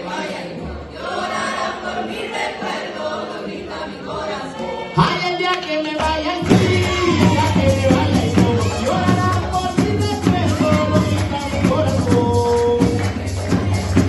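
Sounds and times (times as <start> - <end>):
group of voices singing: 0.0 - 14.0
drums beating: 5.9 - 14.0.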